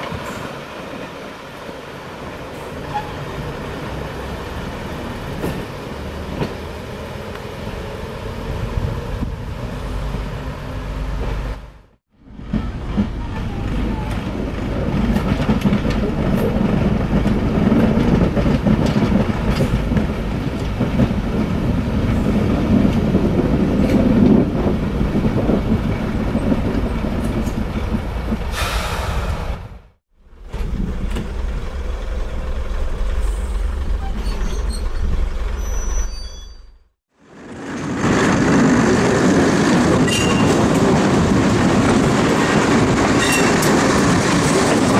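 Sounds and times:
train wheels on rails: 0.0 - 44.9
diesel train engine running: 2.3 - 36.1.

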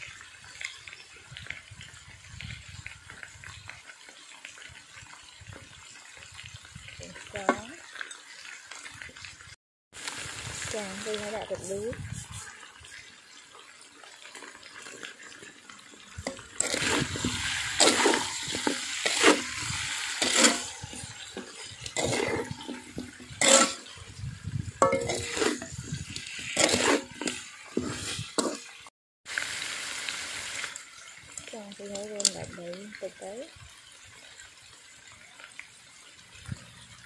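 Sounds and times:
metal spatula scraping a wok: 16.2 - 28.8.

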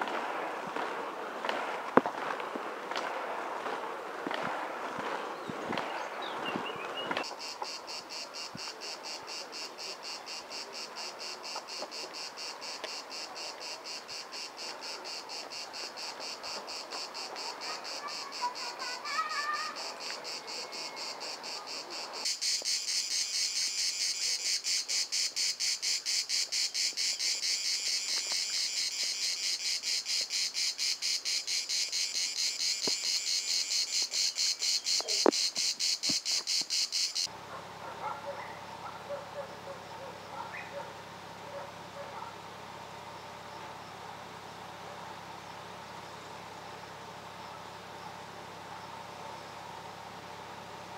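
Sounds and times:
cicadas singing: 5.3 - 50.9.

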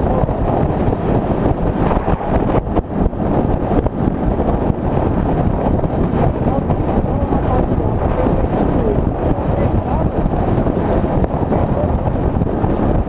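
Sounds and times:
road noise: 0.0 - 11.3
wind buffeting on microphone: 0.0 - 13.0.

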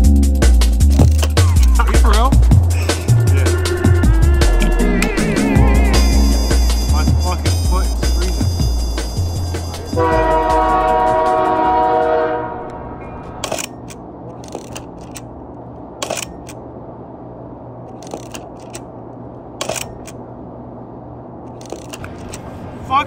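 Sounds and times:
loud held chord: 1.8 - 12.7
camera shutter clicks: 16.0 - 16.6.

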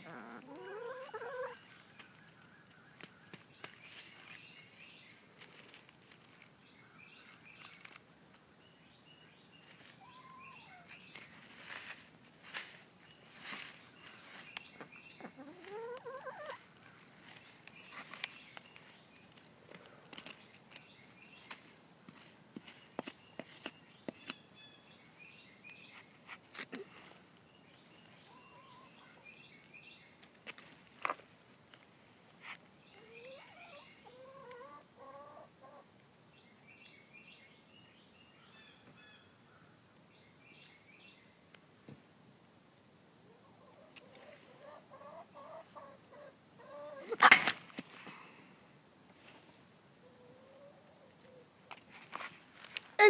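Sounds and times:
chicken squawking: 0.0 - 1.6, 10.0 - 10.9, 15.2 - 16.6, 43.7 - 47.4
branches and leaves rustling: 0.8 - 8.4, 9.5 - 24.4, 25.7 - 32.7, 47.1 - 49.6, 51.7 - 53.0
faint bird chirps: 8.7 - 11.1, 27.9 - 29.7
rising bird call: 10.0 - 10.9.

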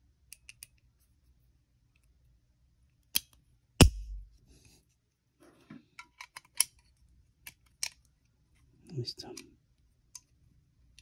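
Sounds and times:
sharp knock with dull thud: 3.8 - 4.3.

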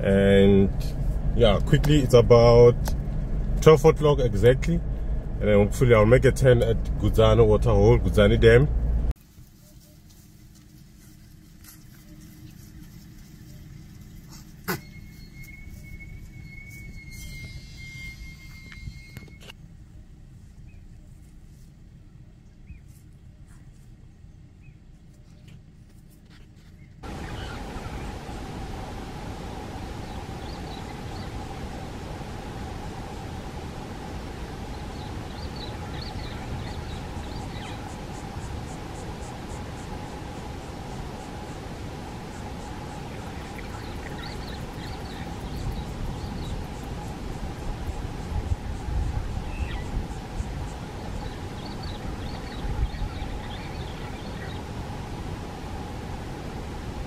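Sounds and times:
vehicle idling rumble: 0.0 - 56.6
thin steady high tone: 14.7 - 19.5
insect high pulsing: 27.0 - 57.0.

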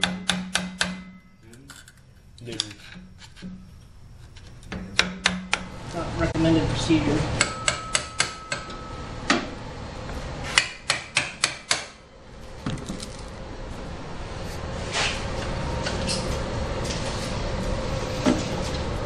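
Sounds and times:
mallet striking metal: 0.0 - 1.3, 7.4 - 9.4.

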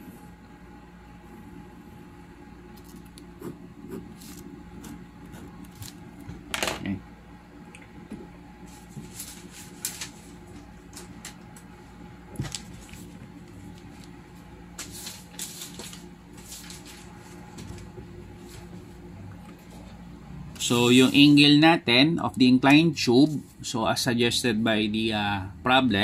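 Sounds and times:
faint steady hum: 0.0 - 26.0
pen scratching on paper: 3.4 - 5.6.

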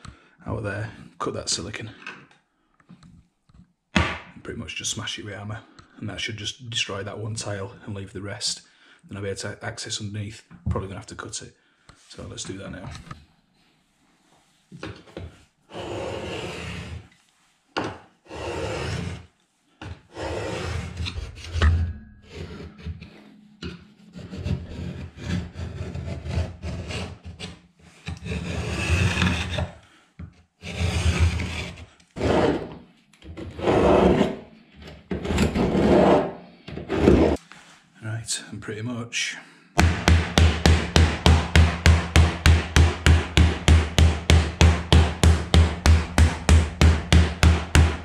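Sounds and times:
screwdriver scraping grout: 15.7 - 17.2, 18.3 - 19.3, 20.1 - 29.8, 30.6 - 34.4, 35.1 - 37.4.

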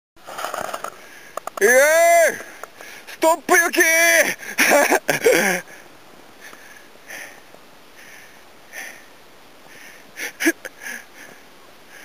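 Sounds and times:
soft breaths: 0.9 - 1.5, 2.4 - 3.2, 5.6 - 12.0
person calling out: 1.6 - 2.4, 3.2 - 4.3.

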